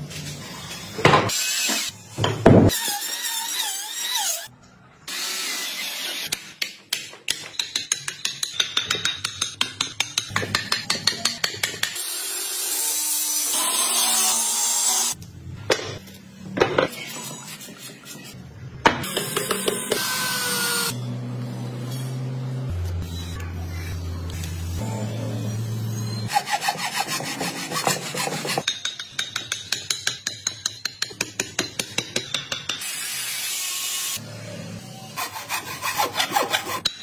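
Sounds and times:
chisel tapping: 0:06.6 - 0:12.0.

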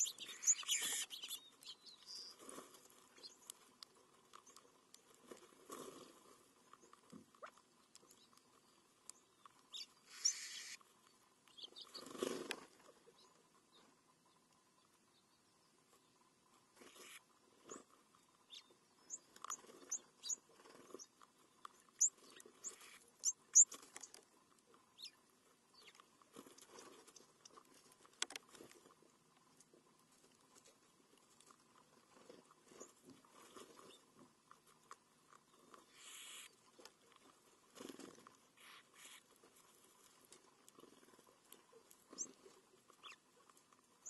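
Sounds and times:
bird chirps: 0:00.0 - 0:02.4, 0:09.1 - 0:10.8, 0:11.5 - 0:12.1, 0:16.9 - 0:24.2, 0:35.9 - 0:36.6, 0:42.1 - 0:42.4, 0:43.0 - 0:43.2
pecking and scratching on gravel: 0:00.0 - 0:15.1, 0:15.8 - 0:44.0.

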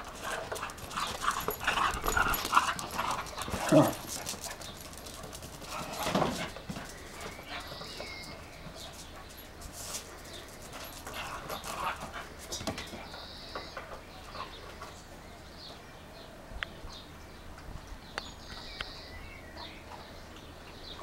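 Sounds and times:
dog scuffling ball on concrete: 0:00.0 - 0:15.0
birds calling: 0:00.0 - 0:21.0.

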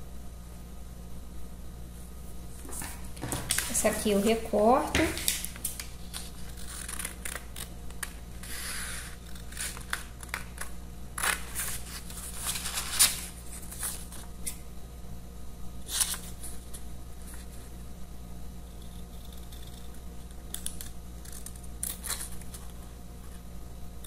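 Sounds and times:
paper rustling: 0:02.6 - 0:04.4, 0:05.0 - 0:14.3
scissors snipping paper: 0:05.2 - 0:14.6, 0:18.8 - 0:22.8.

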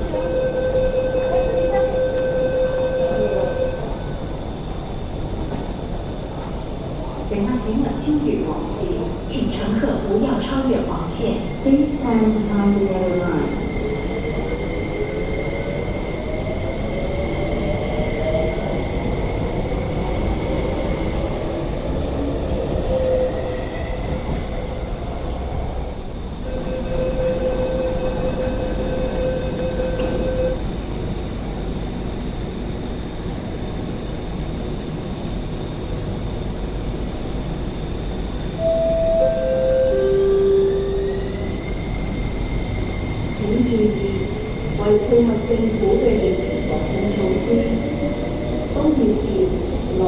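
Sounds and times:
high whine: 0:38.5 - 0:42.3.

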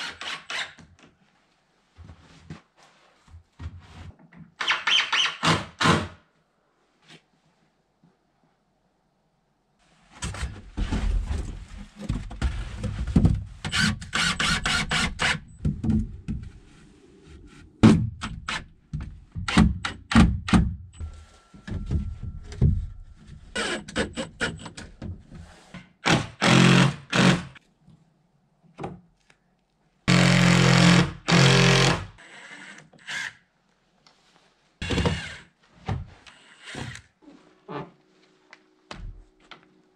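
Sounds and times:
power drill: 0:00.0 - 0:00.8, 0:13.7 - 0:15.4, 0:26.0 - 0:27.6, 0:30.1 - 0:33.4, 0:34.8 - 0:35.5.

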